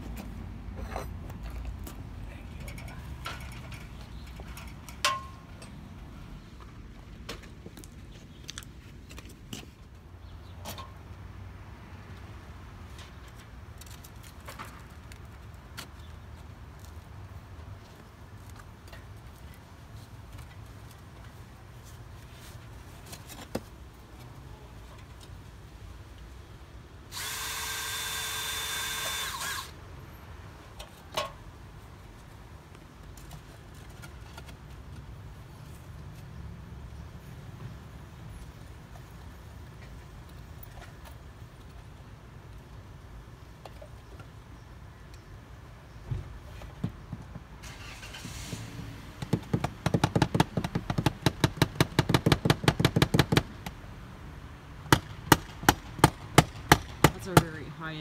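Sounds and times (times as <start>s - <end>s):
power drill running: 27.1s - 29.8s
rapid hammering on nail: 49.2s - 53.5s, 54.9s - 57.2s.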